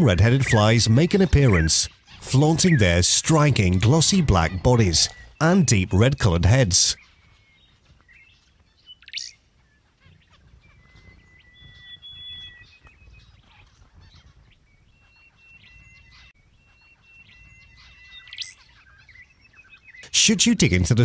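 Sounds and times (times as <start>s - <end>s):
faint bird chirps: 6.9s - 20.6s
thin whistled bird notes: 7.0s - 20.0s.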